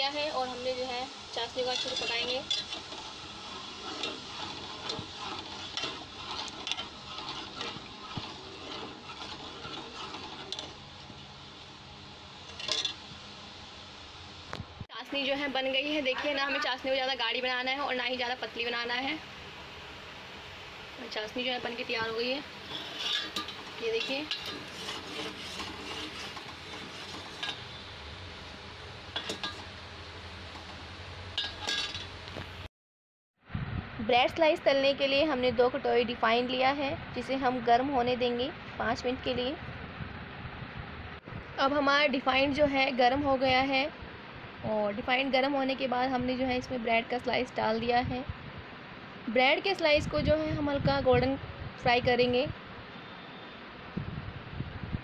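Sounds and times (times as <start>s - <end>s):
syrup bubbling hiss: 0.0s - 32.4s
ladle scraping and clinking on pot: 1.5s - 11.3s, 12.4s - 13.0s, 22.6s - 27.8s, 29.1s - 29.8s, 31.4s - 32.2s.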